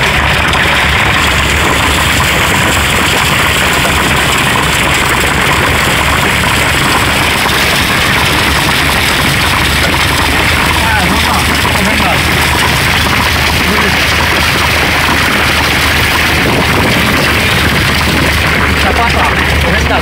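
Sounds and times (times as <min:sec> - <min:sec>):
engine idling hum: 0:00.0 - 0:20.0
hail hitting truck body: 0:00.0 - 0:20.0.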